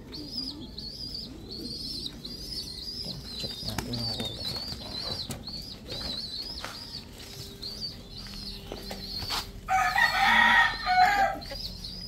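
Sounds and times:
rooster crowing: 0:09.7 - 0:11.6.

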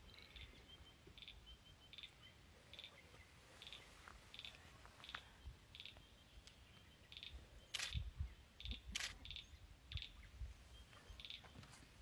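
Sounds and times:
faint bird chirps: 0:00.0 - 0:12.0
sharp clicks: 0:05.8 - 0:09.4.

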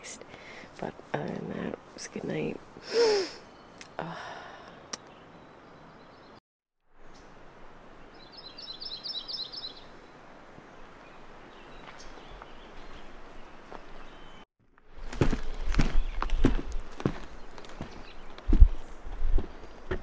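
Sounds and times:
songbird chirping: 0:00.0 - 0:06.4, 0:07.0 - 0:20.0.

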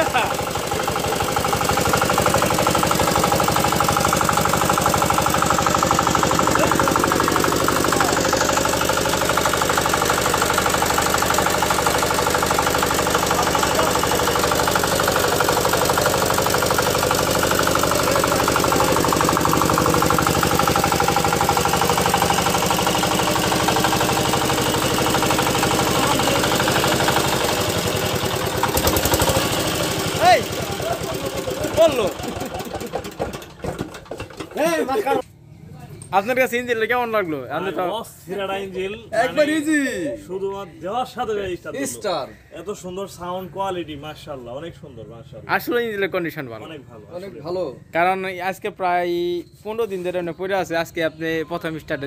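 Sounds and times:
diesel engine running steadily: 0:00.0 - 0:34.6.

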